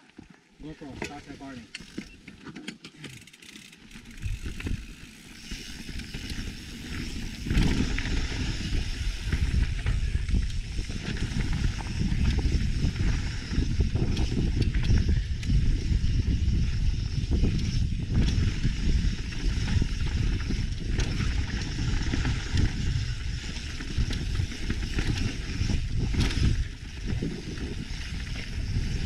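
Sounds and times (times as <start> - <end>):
bike tyres on dirt: 0.0 - 29.0
bike rattling over bumps: 0.1 - 29.0
wind buffeting microphone: 4.0 - 29.0.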